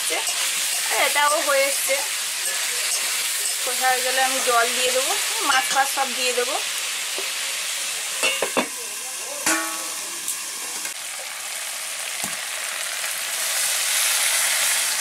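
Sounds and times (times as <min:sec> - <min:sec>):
food sizzling in oil: 0:00.0 - 0:15.0
water hissing in hot pan: 0:00.0 - 0:15.0
metal clinks against pan: 0:02.4 - 0:03.7, 0:08.2 - 0:08.7, 0:09.4 - 0:10.0
ringing metal clang: 0:09.5 - 0:10.0.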